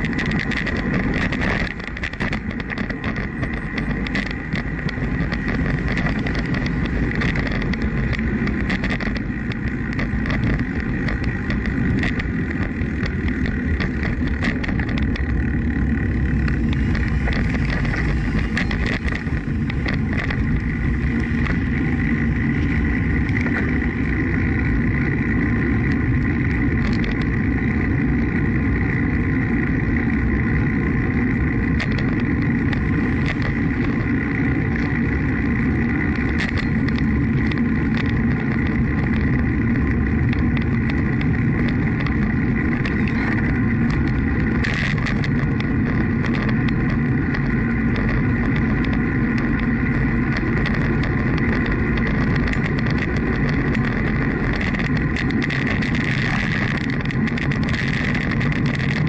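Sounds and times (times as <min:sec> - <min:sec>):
car traffic passing: 0:00.0 - 0:29.6
bicycle tyre noise: 0:00.0 - 0:59.0
small clicks and rattles: 0:00.0 - 0:59.0
wind rumble on microphone: 0:00.0 - 0:59.0.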